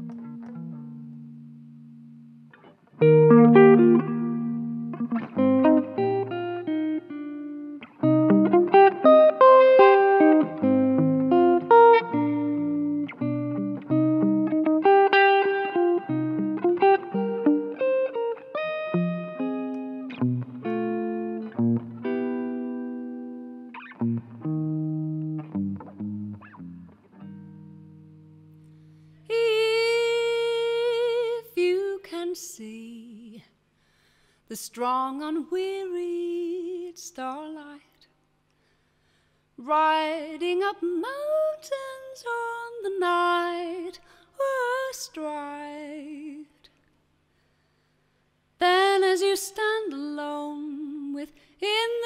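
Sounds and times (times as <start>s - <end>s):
electric guitar chords: 0.0s - 29.2s.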